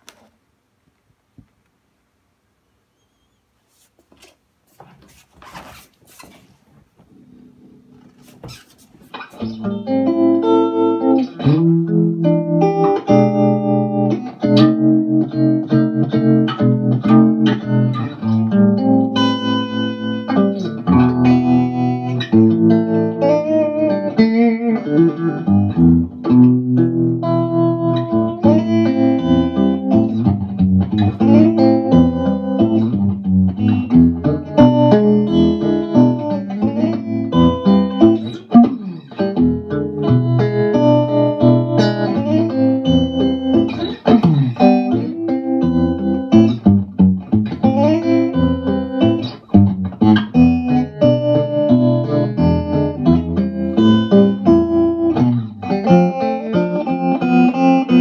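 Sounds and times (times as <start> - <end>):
electric guitar notes and chords: 7.1 - 58.0.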